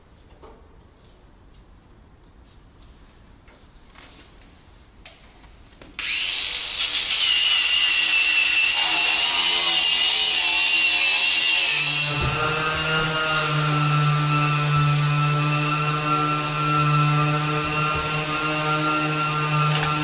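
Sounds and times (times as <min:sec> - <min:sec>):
power tool whining: 0:06.0 - 0:20.0.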